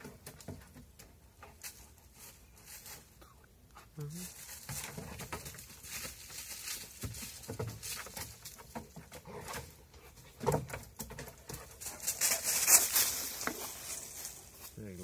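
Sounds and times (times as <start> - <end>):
paws crunching dry leaves: 4.2 - 8.6, 11.8 - 15.0
paws knocking on wooden platform: 6.9 - 12.2.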